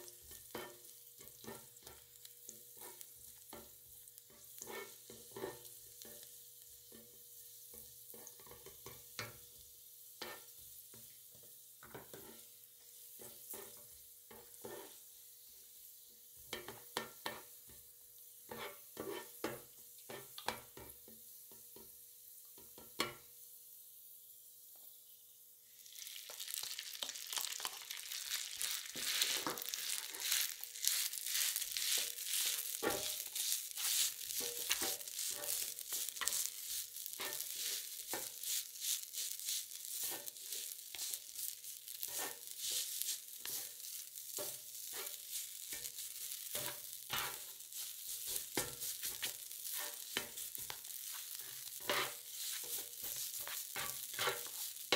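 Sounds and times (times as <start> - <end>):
garlic and rice sizzling: 0.0 - 54.9
plastic spatulas tapping and scraping: 28.6 - 43.8, 44.4 - 54.9.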